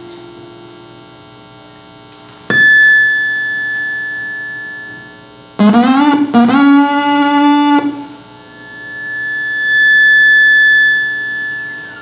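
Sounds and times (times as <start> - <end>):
faint electronic drone: 2.5 - 12.0
high electronic tone: 2.5 - 12.0.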